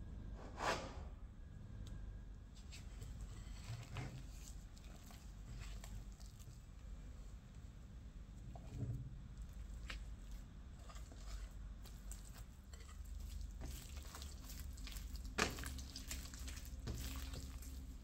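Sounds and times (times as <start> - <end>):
low steady hum: 0.0 - 18.0
hands kneading dough: 2.5 - 18.0.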